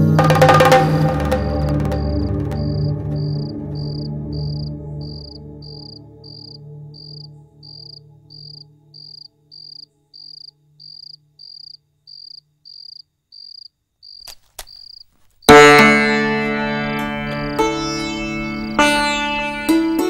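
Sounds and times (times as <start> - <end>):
low sustained music tone: 0.0 - 12.0, 15.5 - 20.0
cricket chirping: 1.9 - 15.6.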